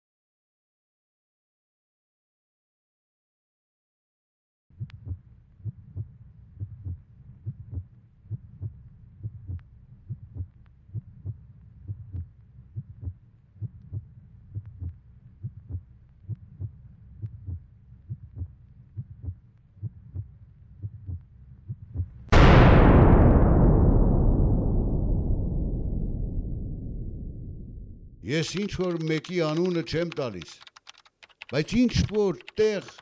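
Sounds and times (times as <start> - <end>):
heartbeat lub-dub beating: 4.8 - 22.6.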